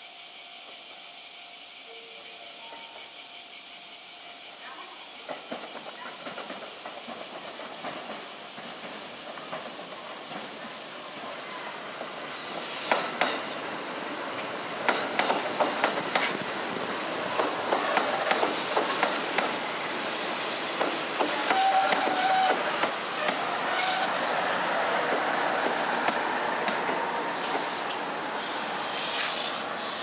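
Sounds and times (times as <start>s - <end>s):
electric train passing: 0.0s - 30.0s
brief hiss: 11.2s - 13.6s, 18.5s - 30.0s
wheels clicking over rail joints: 14.3s - 19.6s.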